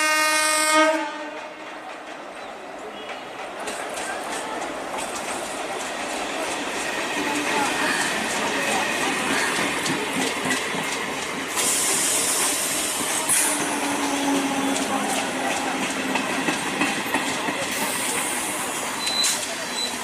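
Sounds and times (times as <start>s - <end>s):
train wheels rumbling on rails: 0.0s - 20.0s
rushing hiss: 11.4s - 15.7s, 17.2s - 19.8s.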